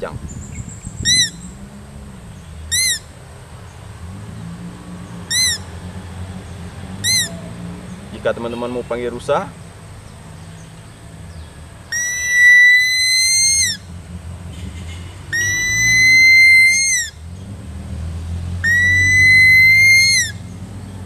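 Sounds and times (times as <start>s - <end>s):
long high whistle call: 11.9s - 13.8s, 15.4s - 17.2s, 18.6s - 20.4s.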